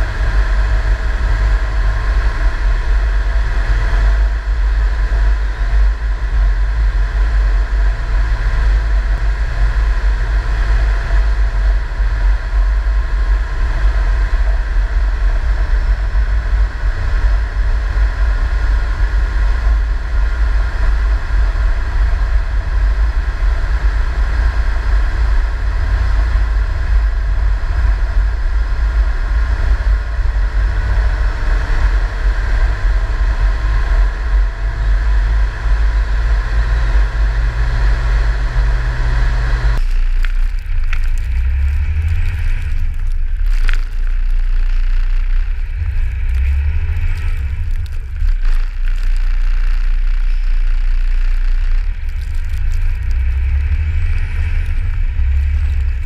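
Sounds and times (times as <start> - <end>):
tracked vehicle engine and track rumble: 0.0 - 56.0.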